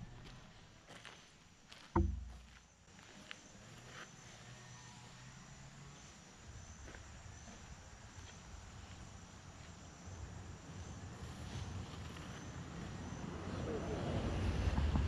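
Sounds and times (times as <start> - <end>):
insects chirping: 0.0 - 14.6
vehicle rumble approaching: 10.2 - 15.0.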